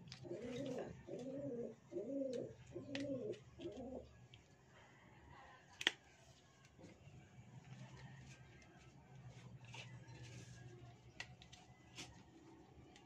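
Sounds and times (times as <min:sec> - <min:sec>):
dove cooing: 0:00.0 - 0:04.2.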